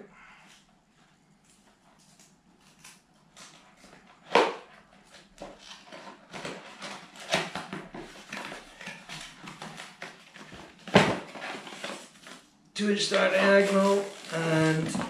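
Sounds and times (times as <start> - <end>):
cardboard and tape rustling: 1.0 - 15.0.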